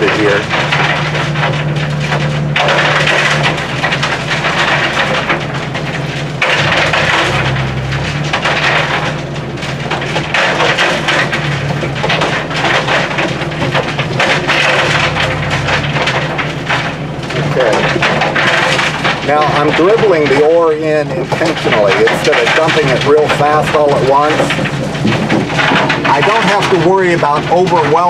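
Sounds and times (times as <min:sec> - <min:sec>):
excavator engine drone: 0:00.0 - 0:28.0
rocks rattling into steel hopper: 0:00.0 - 0:28.0.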